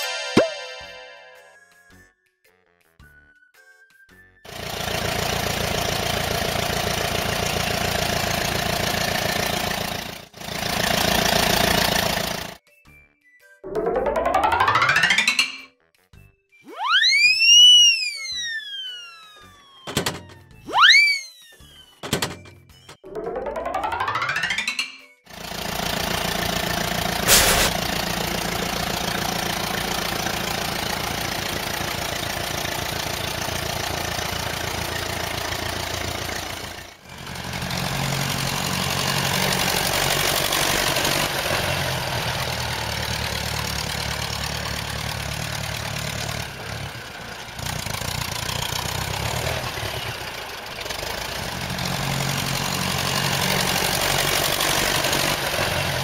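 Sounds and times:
tractor engine running: 4.5 - 12.6, 19.9 - 20.6, 22.0 - 24.4, 25.3 - 56.0.

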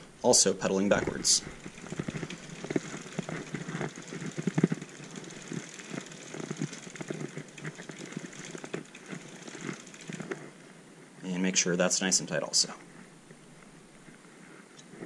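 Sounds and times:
freewheel ratcheting clicks: 0.8 - 10.5.

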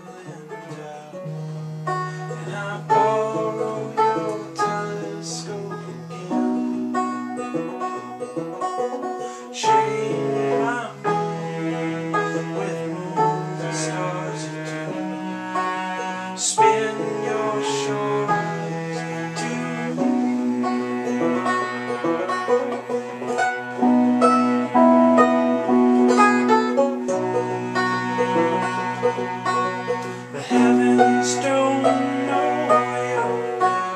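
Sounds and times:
cello low notes: 0.0 - 33.9
electric keyboard notes: 23.7 - 28.0.

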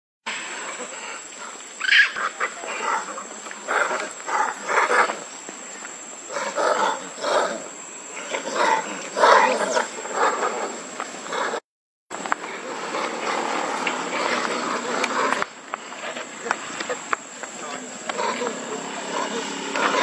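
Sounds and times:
monkeys making harsh calls: 0.6 - 5.4, 6.2 - 11.6, 12.4 - 20.0
thin steady high tone: 6.9 - 11.0.

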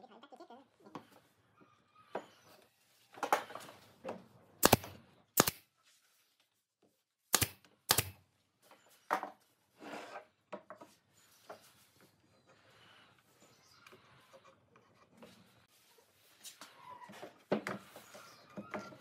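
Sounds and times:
nail gun shots: 4.6 - 5.6, 7.3 - 8.2.

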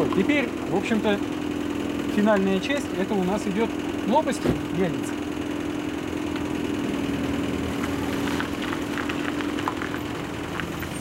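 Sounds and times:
car engine humming: 0.0 - 11.0.

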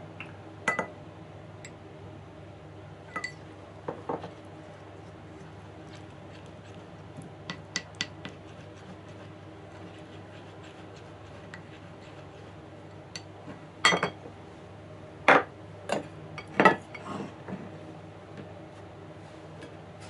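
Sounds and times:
spoon clinking ceramic bowl: 3.1 - 3.4.

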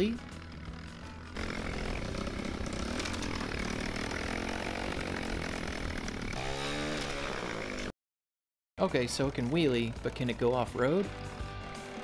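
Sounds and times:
motorcycle engine revving: 0.0 - 7.9.

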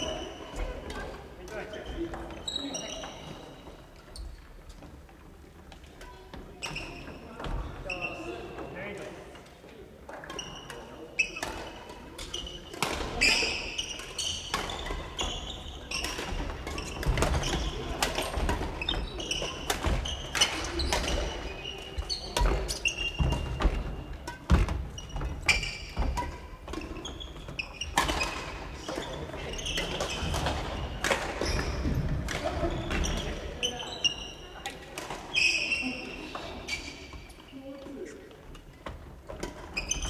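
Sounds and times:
rackets hitting shuttlecocks: 22.4 - 33.2.

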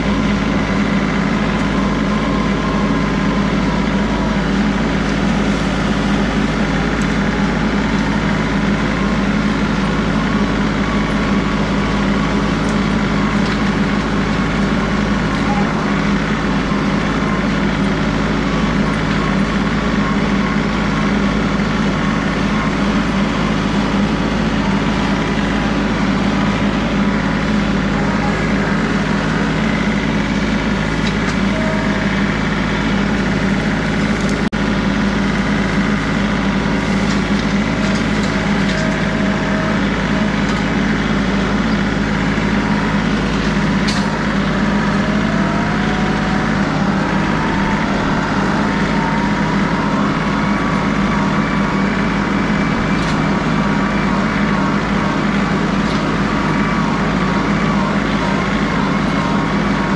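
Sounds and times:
tractor diesel engine running: 0.0 - 59.9.

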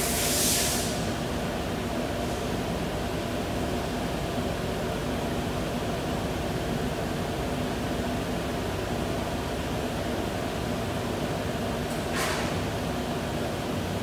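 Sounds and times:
fan-like rushing noise: 0.0 - 4.0
mechanical hum: 0.0 - 14.0.

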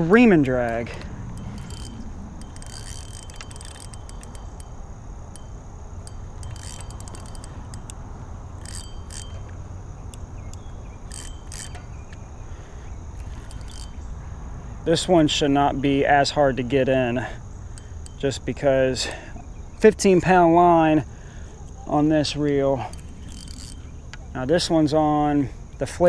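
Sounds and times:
fishing reel drag clicking: 0.1 - 14.2, 17.6 - 19.2, 22.3 - 24.3.

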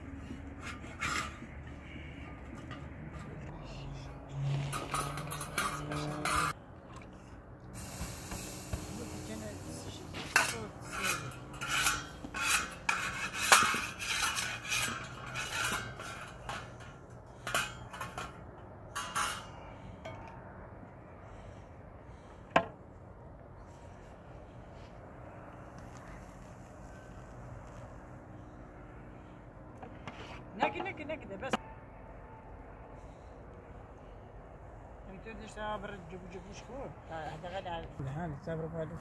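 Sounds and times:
metal scraper on iron griddle: 4.4 - 6.6, 7.8 - 18.4, 19.0 - 19.5
metallic clank: 4.6 - 6.6.

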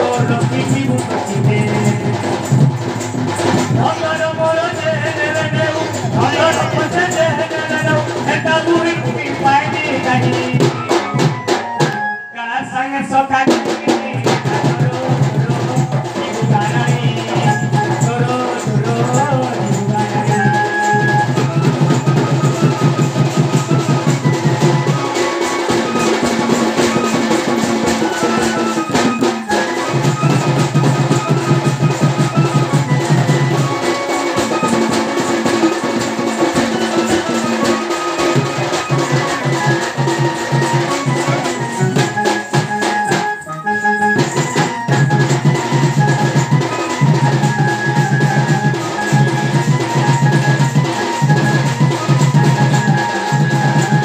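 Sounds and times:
barrel drum beaten fast: 0.0 - 12.0, 13.3 - 43.4, 44.2 - 54.0
sustained melody: 15.9 - 54.0.

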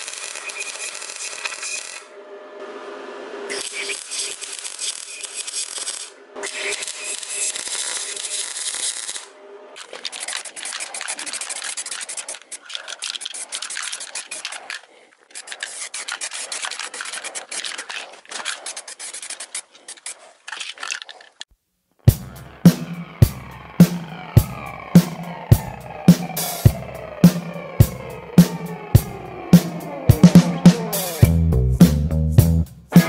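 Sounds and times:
welding arc crackling: 3.5 - 12.4
music: 22.1 - 33.0.

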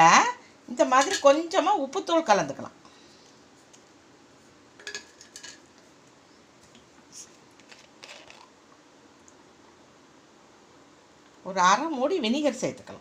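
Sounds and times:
utensil clinking against dish: 4.8 - 5.6.

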